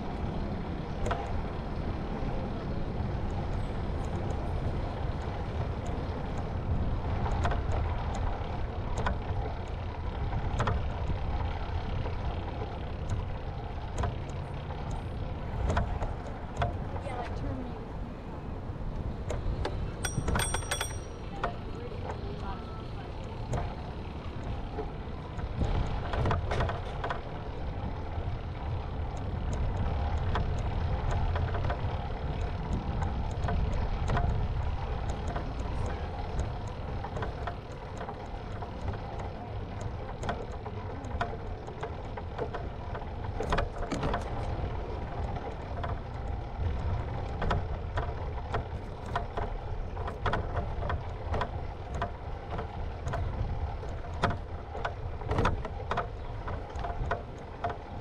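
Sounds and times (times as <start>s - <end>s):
bicycle tyres on pavement: 0.0s - 58.0s
bike knocks and rattles: 7.1s - 14.8s, 19.2s - 22.6s, 23.2s - 58.0s.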